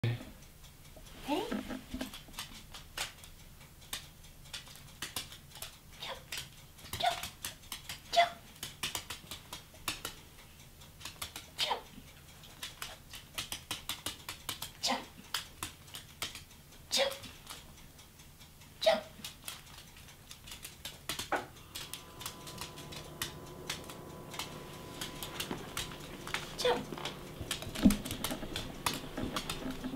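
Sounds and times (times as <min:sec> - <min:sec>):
dog claws clicking on wood floor: 0:03.9 - 0:05.7, 0:06.3 - 0:10.2, 0:11.0 - 0:11.5, 0:12.4 - 0:16.4, 0:19.2 - 0:29.9
dog claws tapping on wood floor: 0:12.5 - 0:14.7, 0:23.2 - 0:29.9.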